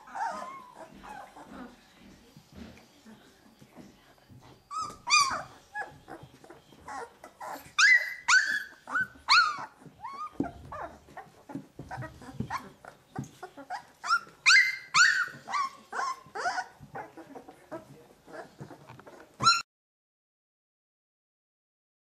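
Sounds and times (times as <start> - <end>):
puppies squealing and whining: 0.0 - 1.8, 4.6 - 19.7.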